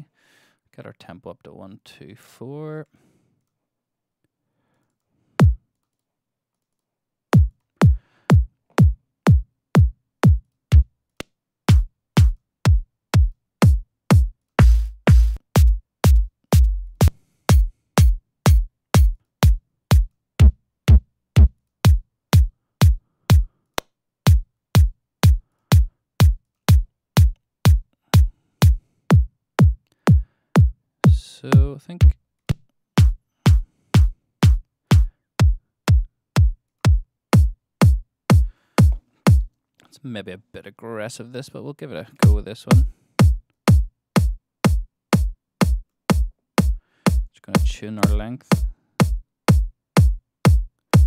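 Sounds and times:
electronic kick drum: 5.4 - 5.6, 7.4 - 10.9, 11.7 - 23.5, 24.3 - 32.2, 33.0 - 39.5, 42.2 - 51.0.

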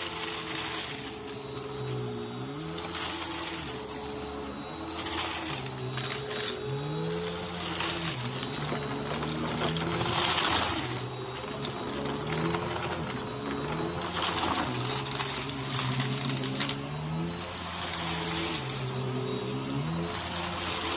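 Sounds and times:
upright vacuum cleaner running: 0.0 - 20.9
debris crunching and rattling: 7.7 - 15.4.

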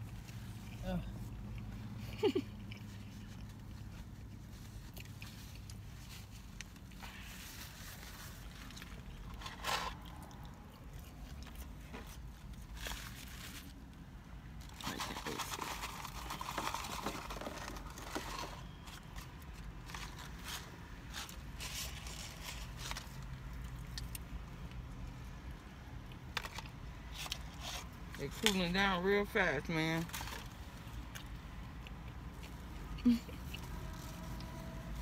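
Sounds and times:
chewing: 0.0 - 13.2, 22.0 - 25.2, 30.9 - 34.6
paper crinkling and rustling: 14.6 - 23.4.

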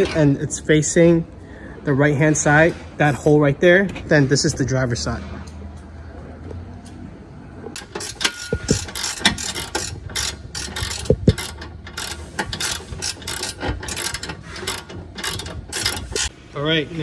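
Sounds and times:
ratchet wrench clicking: 7.8 - 16.3.

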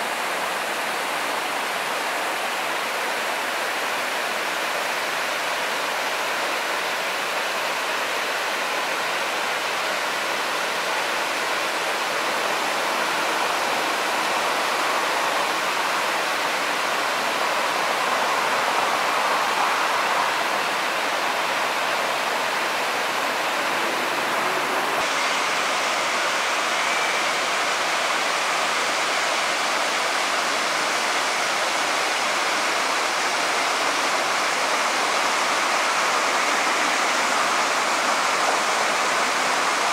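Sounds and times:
waterfall rushing: 0.0 - 39.9.

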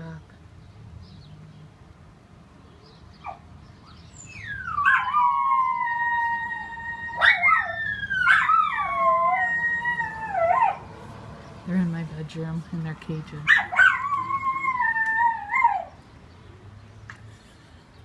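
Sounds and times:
dogs howling: 4.4 - 10.9, 13.5 - 16.0.

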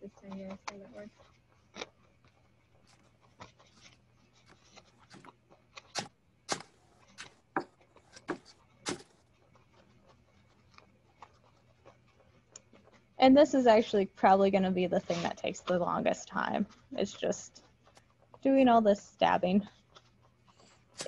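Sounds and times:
felting needle stabbing foam: 2.8 - 9.3.

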